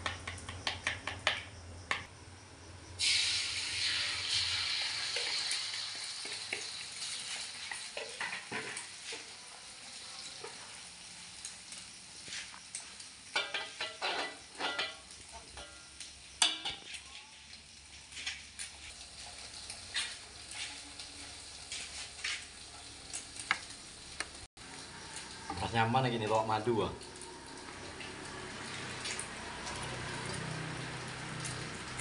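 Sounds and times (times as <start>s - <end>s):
egg sizzling in a wok: 2.8s - 32.0s
metal spatula scraping a wok: 13.4s - 15.0s.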